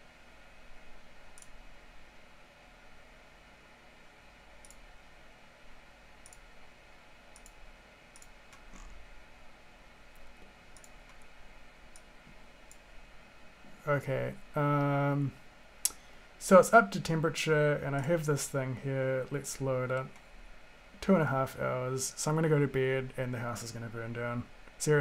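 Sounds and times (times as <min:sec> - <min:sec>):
faint steady hum: 0:00.0 - 0:25.0
computer mouse clicking: 0:04.6 - 0:04.8, 0:06.2 - 0:06.4, 0:07.3 - 0:08.9, 0:10.2 - 0:11.3.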